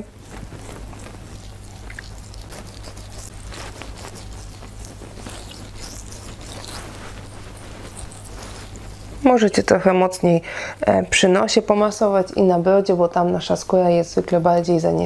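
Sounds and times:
fingers scraping facial scrub: 0.0 - 9.3
low electrical hum: 0.0 - 15.0.

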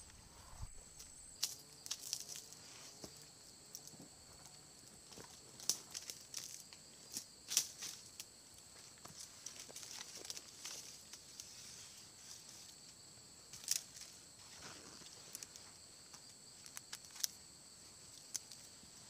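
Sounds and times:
dry leaves crackling and snapping: 1.0 - 2.4, 5.6 - 6.6, 13.5 - 14.0.

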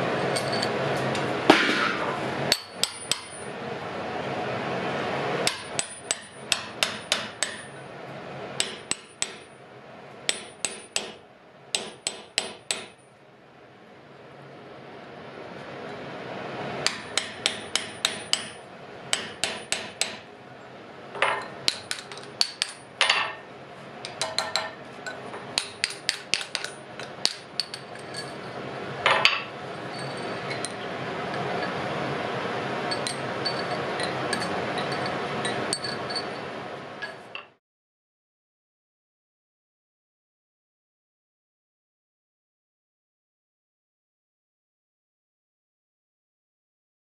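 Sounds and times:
hammer striking iron on anvil: 1.5 - 3.5, 5.4 - 7.8, 8.6 - 9.6, 10.3 - 13.0, 16.8 - 20.3, 21.2 - 23.4, 24.0 - 28.4, 32.9 - 36.3.

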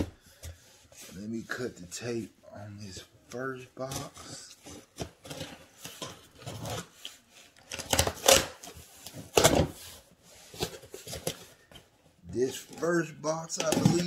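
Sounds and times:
packing tape scraping and tearing: 3.8 - 9.8, 12.4 - 14.0.

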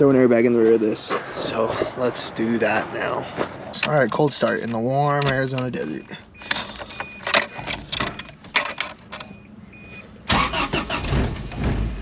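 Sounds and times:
dashboard warning chime beeping: 5.2 - 7.7, 8.3 - 10.1
keys jangling: 6.4 - 9.3
engine cranking and starting: 10.2 - 12.0.

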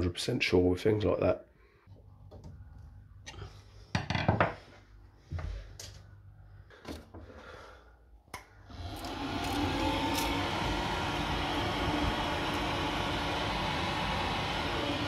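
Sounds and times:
boiler fan whirring: 8.3 - 15.0.

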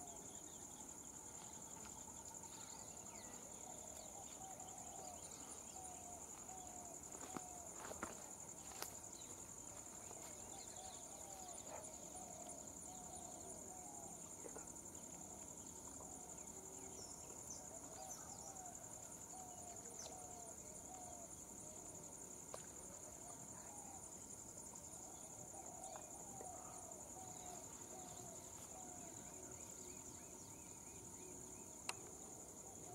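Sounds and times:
insects buzzing: 0.0 - 32.9.

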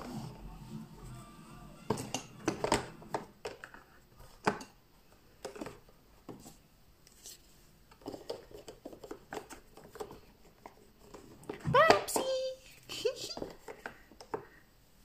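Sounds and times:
makeup cases clicking and knocking: 1.9 - 4.8.

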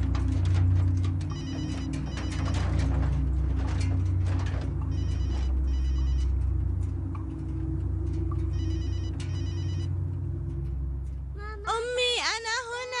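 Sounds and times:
low steady drone: 0.0 - 12.0
telephone ringing: 1.3 - 2.6, 4.9 - 6.3, 8.5 - 9.9.

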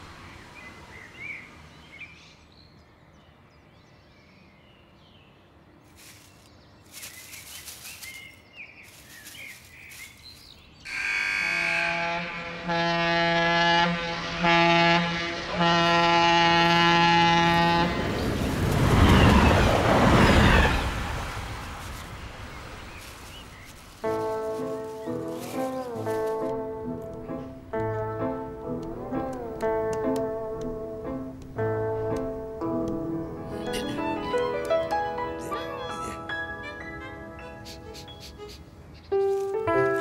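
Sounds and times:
train passing: 0.0 - 2.0, 10.8 - 38.8
bird chirps: 0.3 - 10.9, 37.4 - 39.6
train horn blasts: 10.9 - 18.4.

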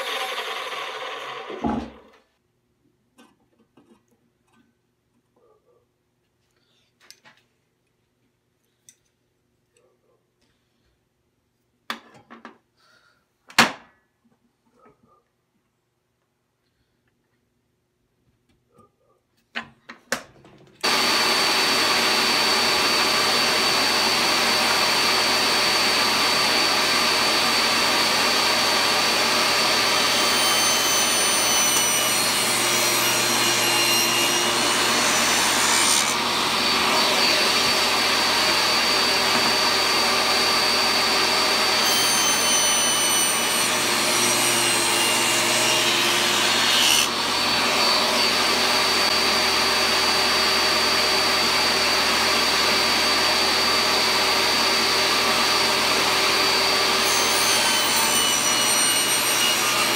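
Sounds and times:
saw blade cutting wood: 0.0 - 2.0, 20.8 - 59.9
table saw motor whining: 0.0 - 2.0, 20.8 - 59.9.

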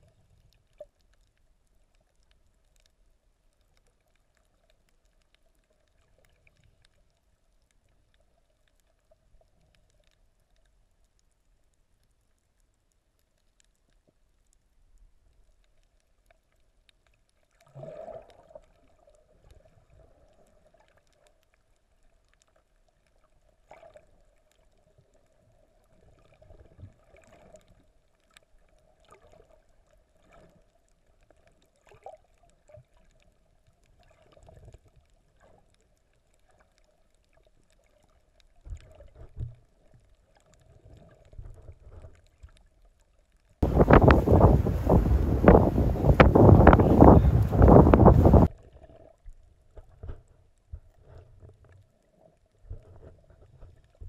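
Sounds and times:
muffled underwater hum: 43.6 - 48.5
wind on microphone: 43.6 - 48.5.

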